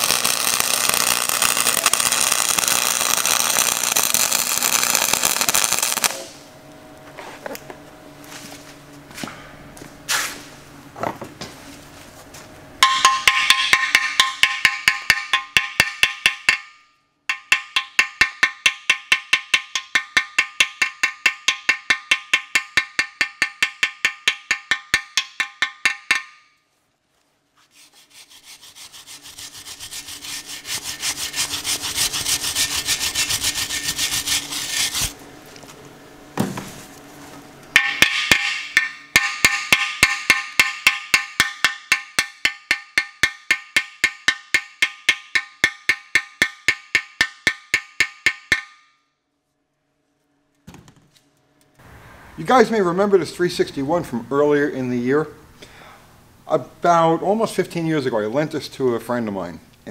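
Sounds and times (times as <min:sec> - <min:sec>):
hammer ringing on cast iron: 0:12.8 - 0:26.6, 0:37.8 - 0:48.9.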